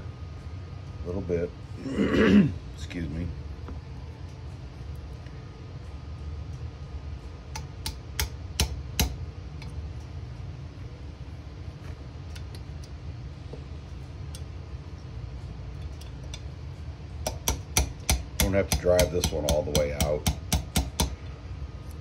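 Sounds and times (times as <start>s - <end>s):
steady low hum: 0.0s - 22.0s
hammer tapping steel punch: 7.5s - 9.7s, 17.2s - 21.2s.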